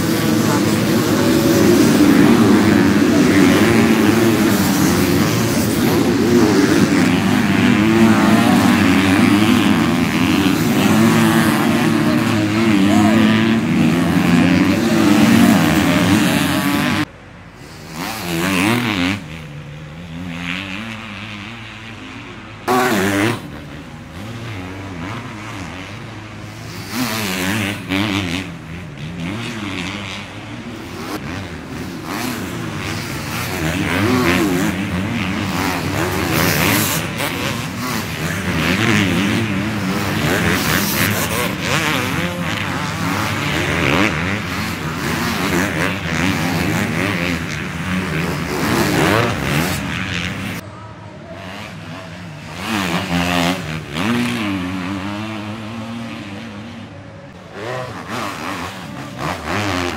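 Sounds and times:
motocross bikes revving past: 0:00.0 - 0:59.9.

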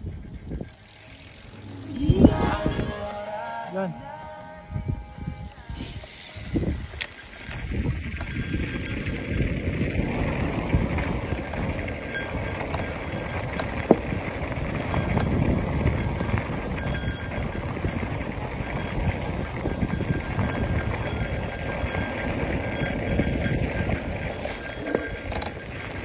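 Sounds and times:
bike rattling and clicking: 0:00.0 - 0:02.1, 0:06.4 - 0:26.0
wind on microphone: 0:00.0 - 0:03.4, 0:04.2 - 0:26.0
bike tyres rolling on dirt: 0:06.6 - 0:26.0.

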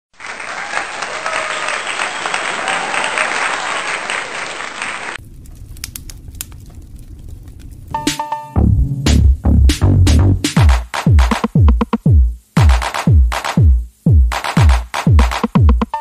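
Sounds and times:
applause: 0:00.1 - 0:05.2
low rumble: 0:05.2 - 0:08.0
scattered clicks: 0:05.4 - 0:08.2.

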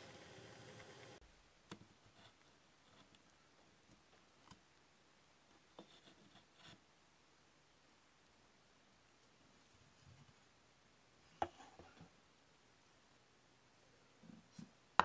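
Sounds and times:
faint clicks and taps: 0:01.7 - 0:04.8.

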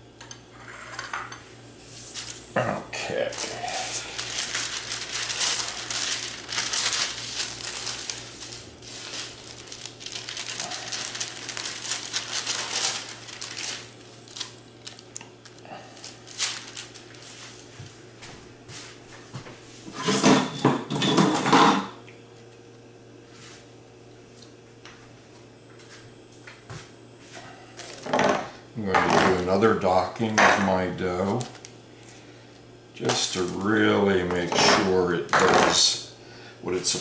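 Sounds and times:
parchment paper rustling: 0:03.1 - 0:18.9, 0:29.2 - 0:32.3, 0:33.0 - 0:35.8.

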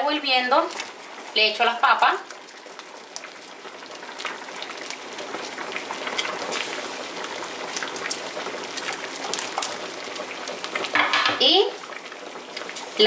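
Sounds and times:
water boiling and bubbling: 0:00.0 - 0:13.0
potatoes plopping into water: 0:02.2 - 0:11.4.

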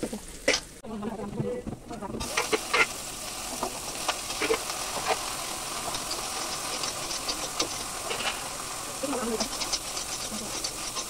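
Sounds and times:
vegetables sizzling in oil: 0:02.1 - 0:11.0
spatula scraping a wok: 0:02.2 - 0:03.0, 0:03.6 - 0:11.0.

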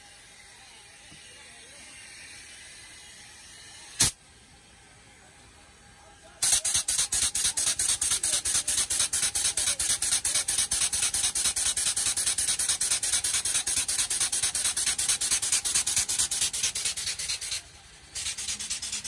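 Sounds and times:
air grease gun pumping: 0:06.4 - 0:19.0.

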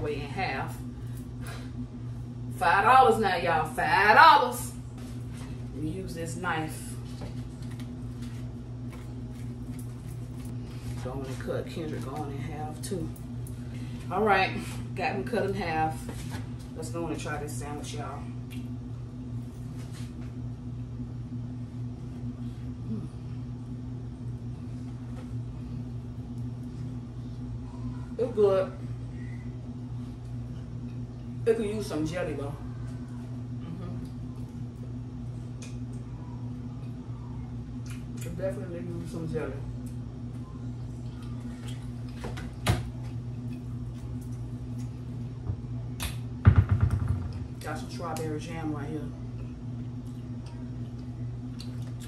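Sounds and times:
steady low hum: 0:00.0 - 0:52.0
low thump: 0:46.4 - 0:47.4.

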